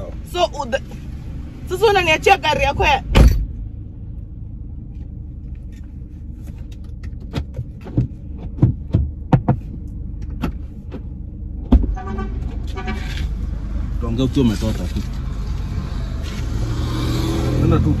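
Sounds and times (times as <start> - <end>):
car idling hum: 0.0 - 16.6
clicks and knocks from seat movement: 4.9 - 13.3.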